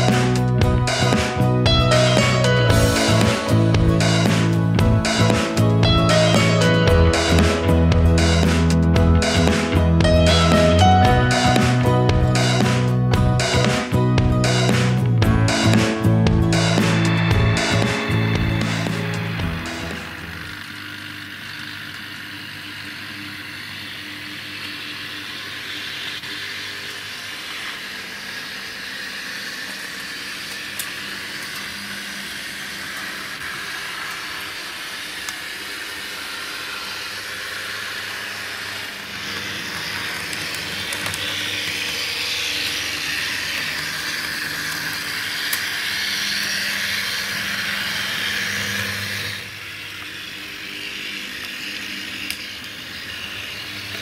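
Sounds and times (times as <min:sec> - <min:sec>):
low hum: 0:00.0 - 0:20.7
model tram motor whirring: 0:00.0 - 0:54.0.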